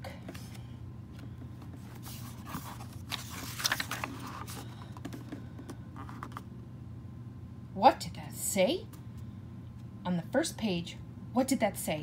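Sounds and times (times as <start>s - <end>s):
paper rustling: 1.7s - 5.2s
picture book pages turning: 1.7s - 5.4s.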